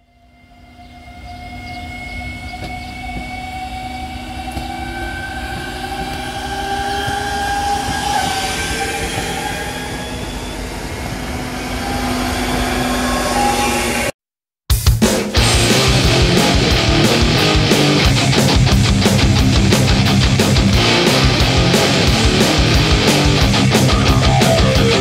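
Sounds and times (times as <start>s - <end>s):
train passing with whining tones: 0.0s - 14.2s, 15.4s - 25.0s.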